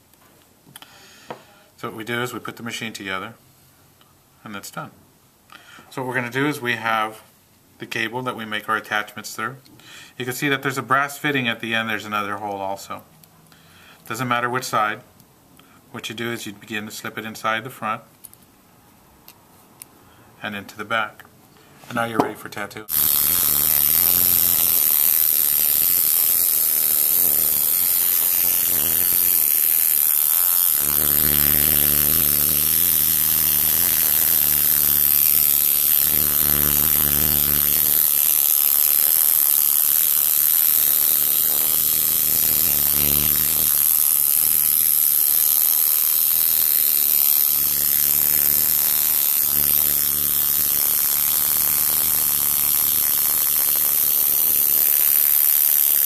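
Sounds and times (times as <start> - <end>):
steady high hiss: 20.3 - 56.0
tattoo machine buzzing: 22.9 - 56.0.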